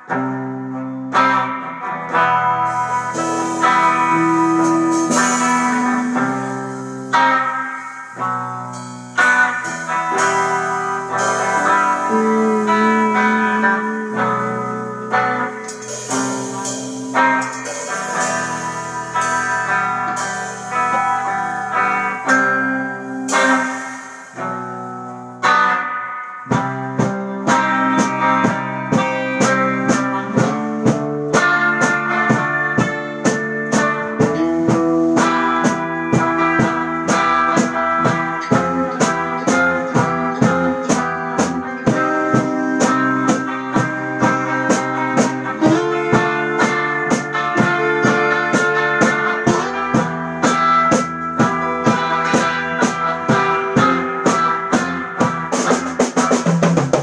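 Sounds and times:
drum kit beat: 0.0 - 57.0
electric bass: 0.0 - 57.0
electric guitars: 0.0 - 57.0.

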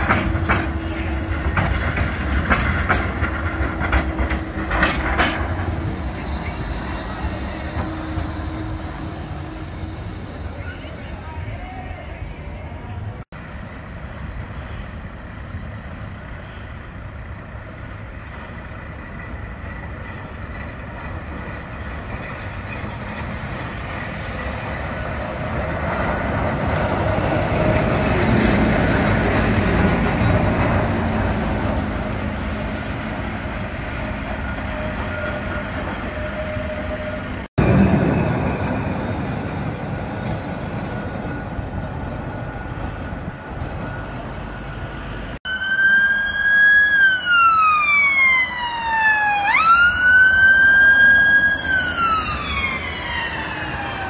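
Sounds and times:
tram passing with whine: 0.0 - 54.0
vehicle noise: 0.0 - 54.0.

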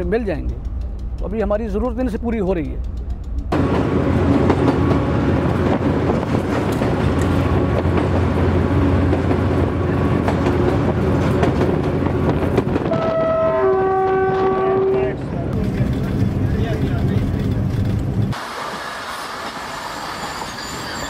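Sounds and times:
locomotive engine drone: 0.0 - 20.1
wheel and track noise: 0.0 - 21.0
locomotive horn: 12.8 - 15.3.

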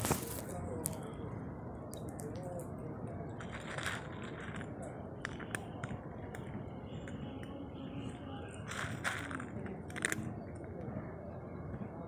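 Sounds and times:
low background noise: 0.0 - 12.0
cat crunching dry kibble: 3.4 - 6.4, 8.6 - 10.3.

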